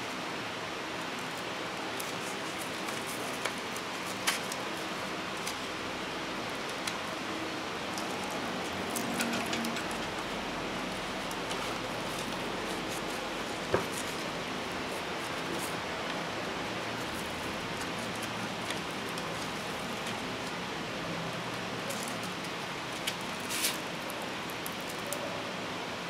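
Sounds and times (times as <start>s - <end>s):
steady background hiss: 0.0s - 26.0s.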